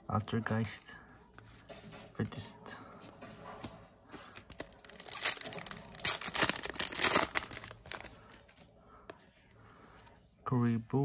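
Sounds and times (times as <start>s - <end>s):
foil wrapper tearing: 4.6s - 8.3s.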